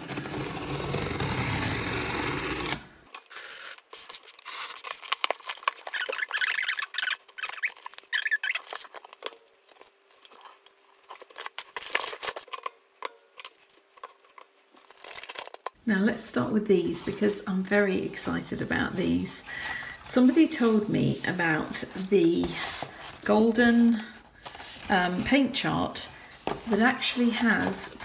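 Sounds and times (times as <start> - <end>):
knife slicing packing tape: 0.0 - 9.1
paper packing crackling and rustling: 3.1 - 15.8, 16.8 - 28.0.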